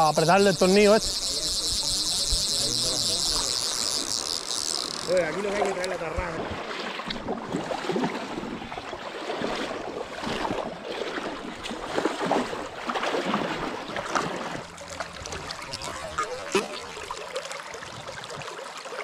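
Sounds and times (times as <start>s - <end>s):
fish splashing in water: 0.0s - 19.0s
river current washing: 0.0s - 19.0s.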